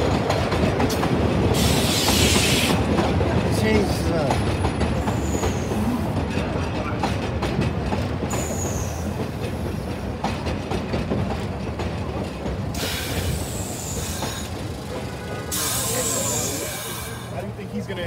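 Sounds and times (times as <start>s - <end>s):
train wheels rumbling and clacking: 0.0s - 18.0s
high wheel squeals: 12.8s - 17.5s.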